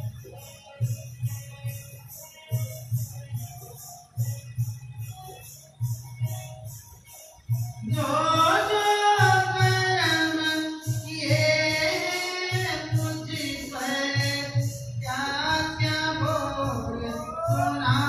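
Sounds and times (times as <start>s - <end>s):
music with low beat: 0.0s - 18.0s
woman singing devotional song: 7.8s - 18.0s.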